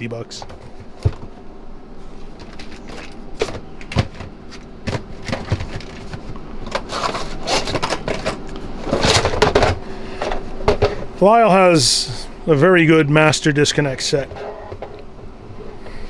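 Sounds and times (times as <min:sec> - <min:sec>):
faint steady hum: 0:00.0 - 0:16.0
boxed tools knocking and clacking: 0:02.4 - 0:11.0.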